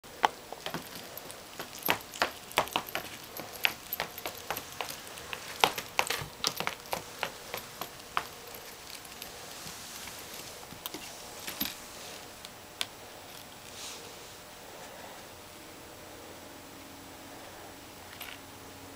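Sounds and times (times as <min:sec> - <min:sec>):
dog shoes tapping on wooden floor: 0:00.2 - 0:10.4.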